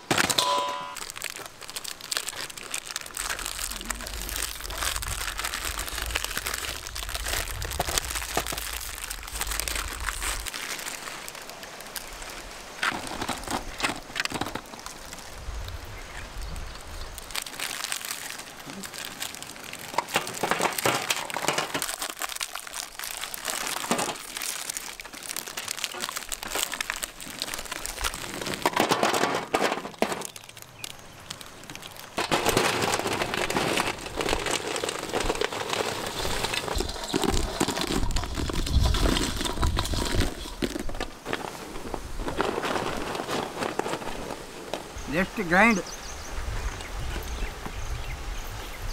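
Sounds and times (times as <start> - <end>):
plastic wrappers crinkling and tearing: 0.0 - 15.7, 16.3 - 45.8
biscuits clattering into steel bowl: 19.9 - 22.8, 32.2 - 40.9.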